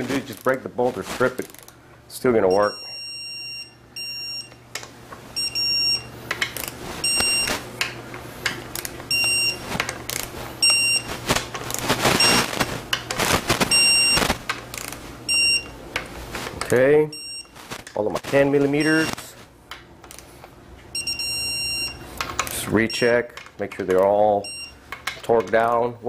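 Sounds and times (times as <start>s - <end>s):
torque wrench beeping: 2.5s - 4.6s, 5.4s - 6.1s, 7.0s - 7.5s, 9.1s - 9.6s, 10.6s - 11.1s, 13.7s - 14.2s, 18.8s - 19.1s, 20.9s - 22.0s.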